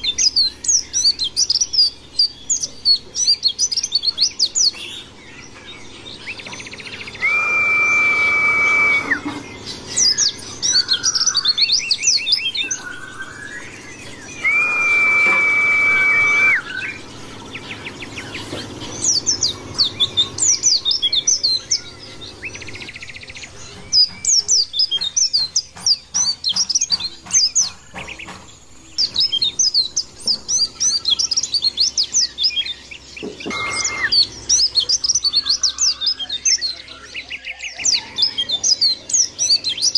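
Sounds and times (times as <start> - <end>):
bird twittering song: 0.0 - 39.9
long level bird whistle: 6.2 - 18.4, 28.9 - 39.9.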